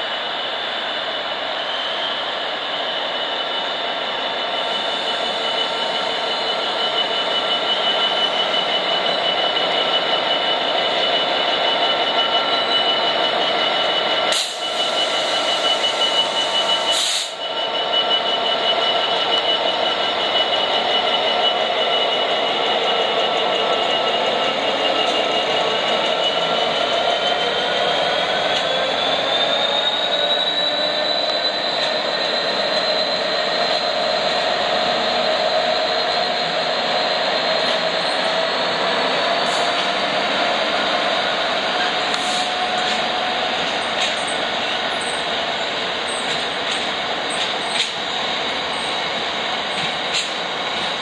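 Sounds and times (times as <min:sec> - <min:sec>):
diesel locomotive engine drone: 0:00.0 - 0:51.0.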